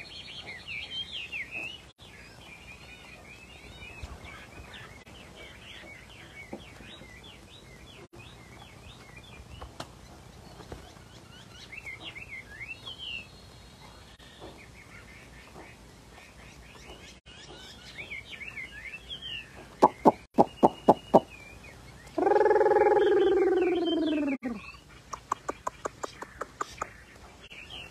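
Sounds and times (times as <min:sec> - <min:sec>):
bird singing whistled notes: 0:11.4 - 0:14.4, 0:17.3 - 0:24.9.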